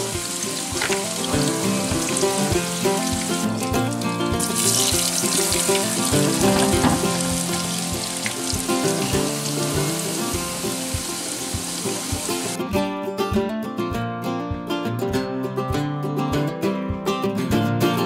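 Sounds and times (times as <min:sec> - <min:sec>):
onions sizzling in a skillet: 0:00.0 - 0:12.6
music with plucked strings: 0:00.0 - 0:18.0.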